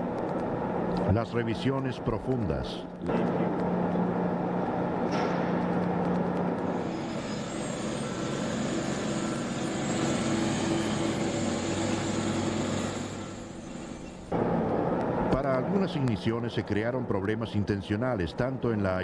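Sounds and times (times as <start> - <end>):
blower-like machinery hiss: 6.6 - 14.3.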